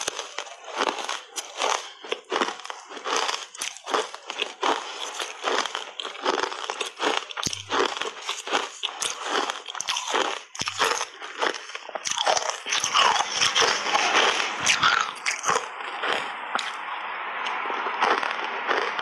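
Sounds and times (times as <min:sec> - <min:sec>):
crunching and chewing ice: 0:00.0 - 0:19.0.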